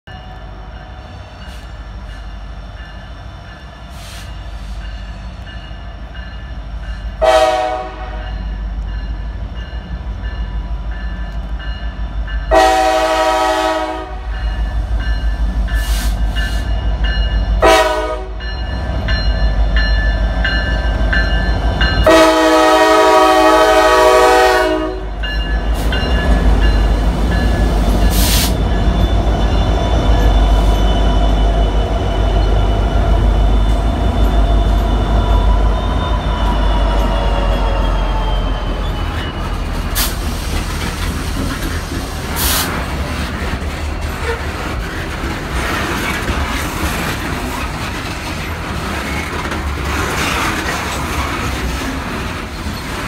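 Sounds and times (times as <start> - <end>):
diesel locomotive rumble: 0.1 - 53.0
train horn blasts: 7.2 - 8.5, 12.5 - 14.5, 17.6 - 18.6, 22.0 - 25.2.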